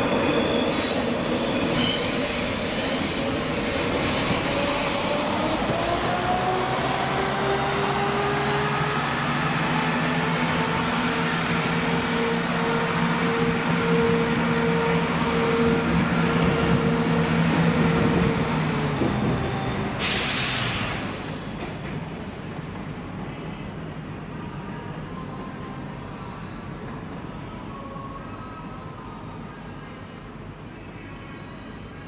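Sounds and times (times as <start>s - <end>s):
electric locomotive whine: 0.0s - 20.3s
short hiss of air: 20.0s - 21.4s.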